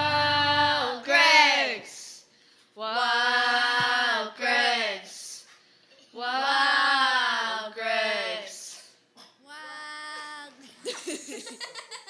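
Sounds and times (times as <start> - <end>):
children singing: 0.0 - 1.5
children laughing: 10.8 - 12.0.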